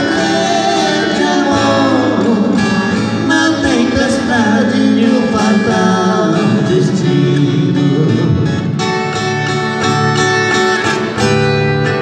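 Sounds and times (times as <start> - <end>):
men singing: 0.0 - 8.6
acoustic guitars: 0.0 - 12.0.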